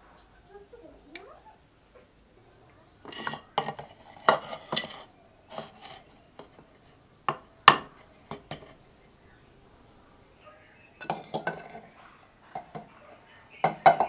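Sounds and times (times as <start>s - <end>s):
bowl knocking on clay dish: 7.3s - 8.8s, 11.0s - 11.9s, 13.6s - 14.0s.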